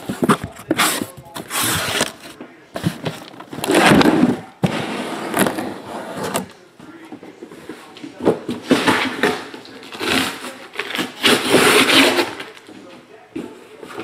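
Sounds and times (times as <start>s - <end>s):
cardboard boxes scraping and rustling: 0.0s - 6.5s.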